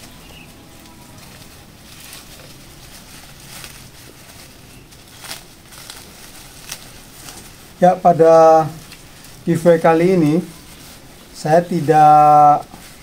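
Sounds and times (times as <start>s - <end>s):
leaves and twigs rustling: 0.0s - 13.0s.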